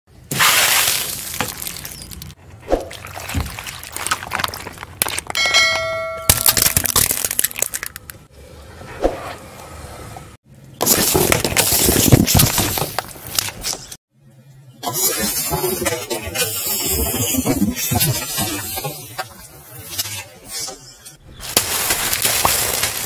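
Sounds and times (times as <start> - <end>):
objects crunching under tyre: 0.2 - 8.3, 10.7 - 14.0, 21.3 - 23.0
liquid splatter: 0.3 - 1.9, 2.7 - 5.2
bell-like ding: 5.4 - 6.5.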